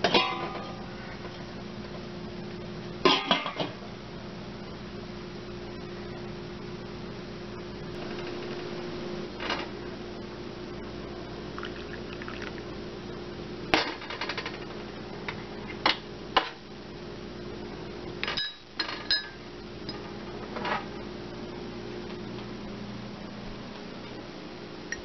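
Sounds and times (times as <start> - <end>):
steady low hum: 0.0 - 25.0
glass cup clinking: 11.6 - 12.6, 18.4 - 19.4.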